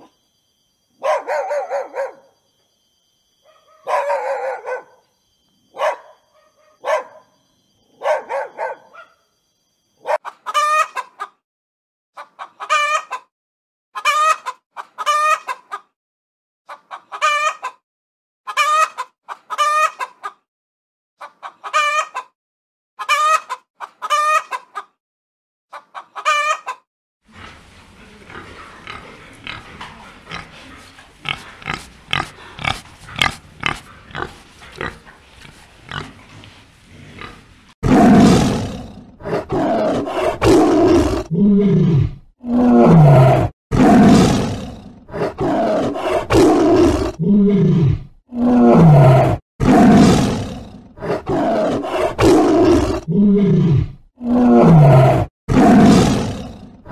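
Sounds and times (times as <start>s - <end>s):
dog barking: 1.0s - 2.4s, 3.4s - 5.1s, 5.7s - 7.4s, 8.0s - 9.2s, 10.0s - 10.3s
hen clucking: 10.2s - 11.4s, 12.2s - 13.3s, 14.0s - 15.9s, 16.7s - 17.8s, 18.5s - 20.4s, 21.2s - 22.3s, 23.0s - 25.0s, 25.7s - 37.5s
pigs grunting: 27.3s - 56.9s.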